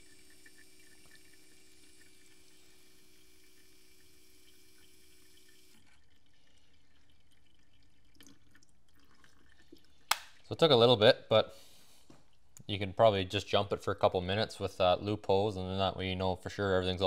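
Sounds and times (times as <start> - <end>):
fuel trickling into container: 0.0 - 10.5
faint steady pump hum: 0.0 - 17.0.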